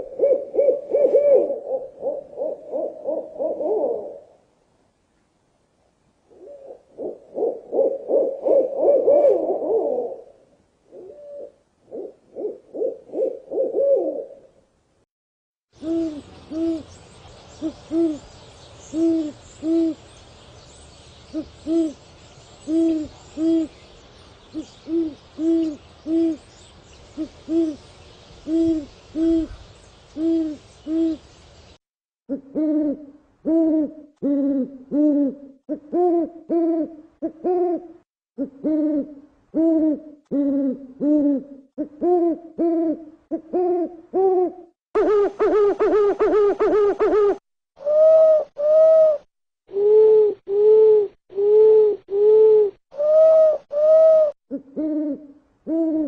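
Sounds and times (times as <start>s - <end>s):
light hiss: 15.8s - 31.8s
owls hooting: 42.0s - 56.0s.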